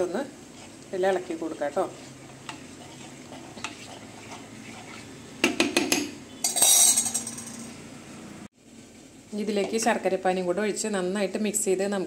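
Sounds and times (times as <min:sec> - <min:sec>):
spoon scraping pan: 0:00.0 - 0:05.4
metal spoon clinking against pan: 0:05.8 - 0:07.6.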